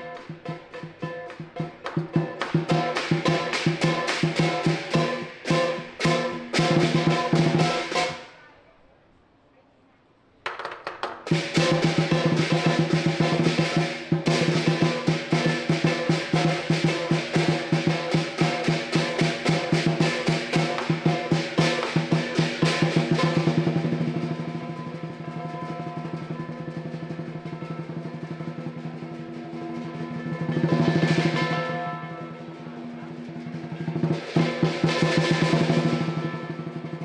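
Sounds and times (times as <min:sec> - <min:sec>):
cymbals crashing: 0:00.0 - 0:08.3, 0:11.3 - 0:37.0
lion dance drum: 0:00.0 - 0:08.4, 0:10.5 - 0:37.0
gong ringing: 0:23.2 - 0:33.4.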